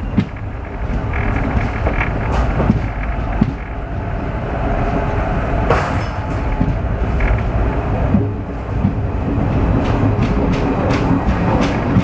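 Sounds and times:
train wheels rumbling on rail: 0.0s - 12.0s
sharp knocks: 0.2s - 3.7s.

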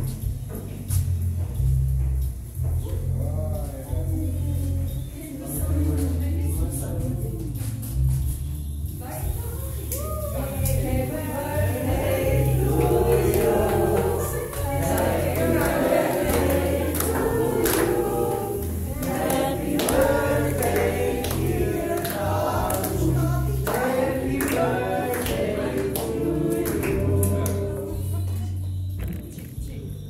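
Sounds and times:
music with steady bass line: 0.0s - 30.0s
group of people singing: 10.2s - 28.6s.

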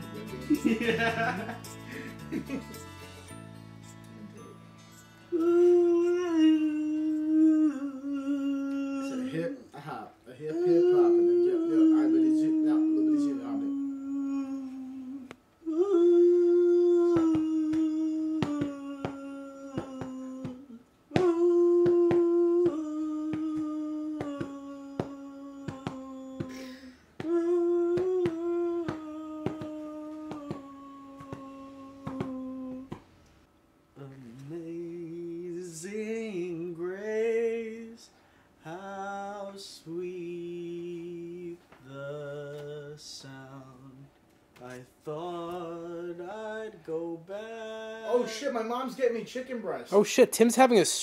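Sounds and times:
person humming a falling tune: 5.3s - 9.6s, 10.4s - 33.0s
low wavering sung chant: 5.3s - 9.8s, 10.4s - 26.5s, 27.2s - 33.0s.

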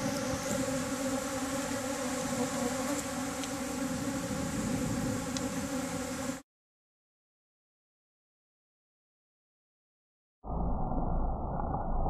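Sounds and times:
bees buzzing: 0.0s - 6.4s.

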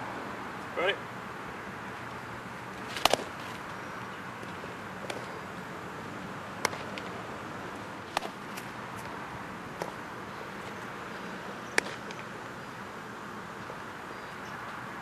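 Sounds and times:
baseball bat cracks: 2.8s - 3.5s, 6.6s - 7.2s, 8.1s - 8.7s, 11.7s - 12.3s.

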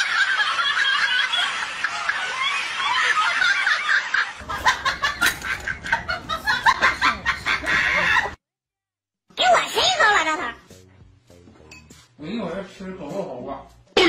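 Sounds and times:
people laughing: 0.0s - 8.4s.

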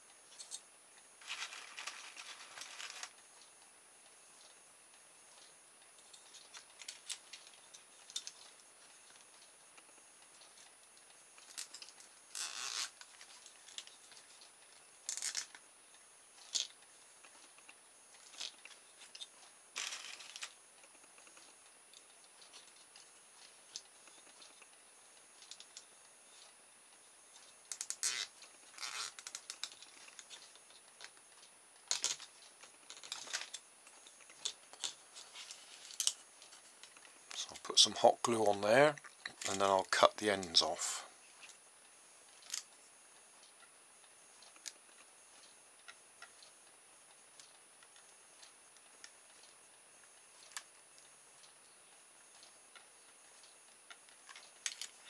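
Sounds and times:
cable ties ratcheting zips: 11.4s - 13.0s, 27.7s - 29.8s.

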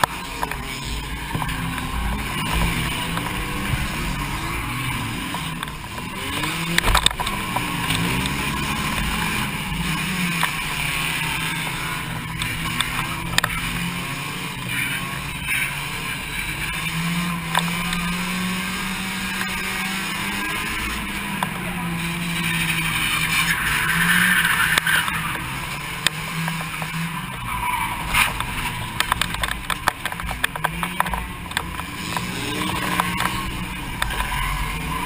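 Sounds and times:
car engine revving: 0.0s - 35.0s.

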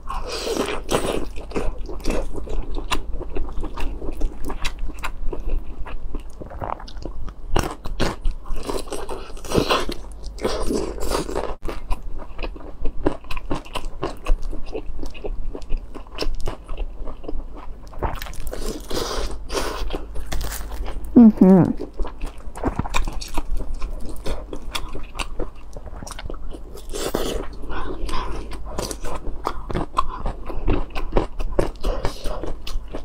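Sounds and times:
person chewing wetly: 0.1s - 21.1s, 21.8s - 33.0s.

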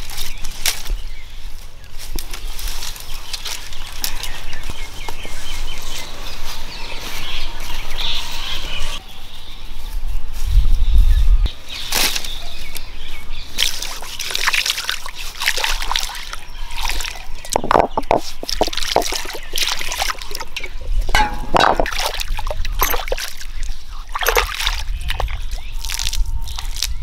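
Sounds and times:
water splashing and trickling on stone: 13.6s - 27.0s.

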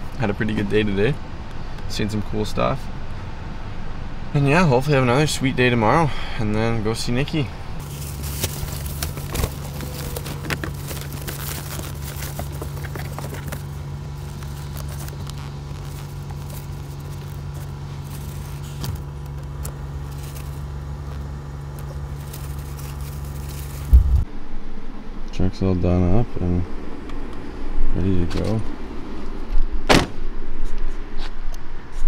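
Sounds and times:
truck engine idling: 2.8s - 24.3s.

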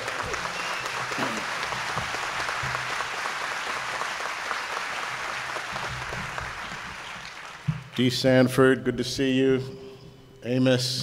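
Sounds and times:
large audience applauding: 0.0s - 8.0s.

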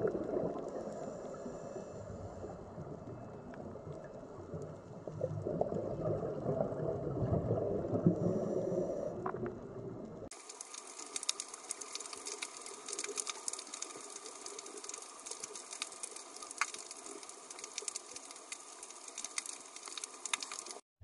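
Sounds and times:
steady underwater hiss: 0.0s - 6.9s, 7.8s - 20.8s
crackling clicks: 9.2s - 20.8s.

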